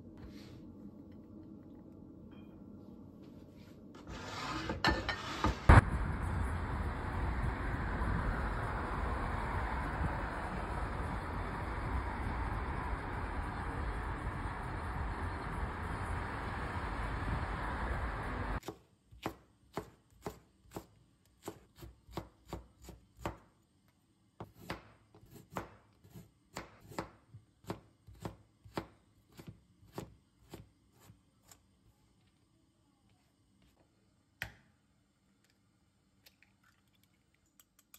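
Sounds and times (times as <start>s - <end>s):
road and engine noise in a car: 5.7s - 18.6s
knife chopping on plastic board: 26.5s - 30.6s.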